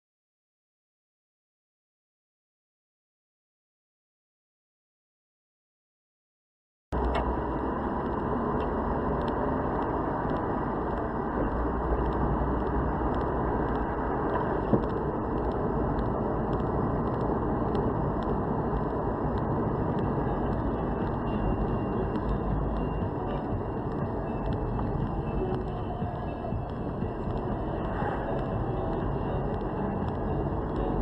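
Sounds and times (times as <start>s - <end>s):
car engine and tyre rumble: 6.9s - 31.0s.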